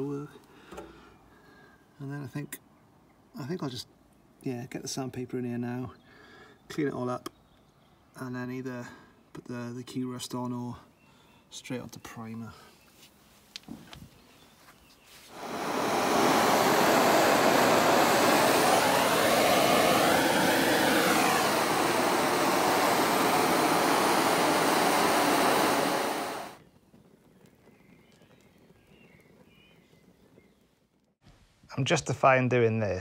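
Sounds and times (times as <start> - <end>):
heat gun blowing: 15.3 - 26.6.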